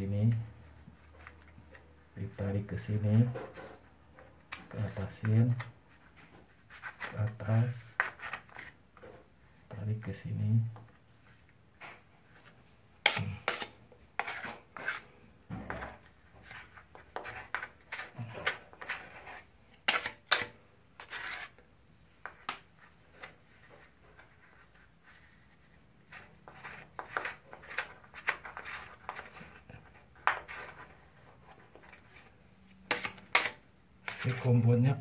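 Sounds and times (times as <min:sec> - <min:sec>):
putty knife scraping compound: 0:12.3 - 0:21.6, 0:22.2 - 0:35.0.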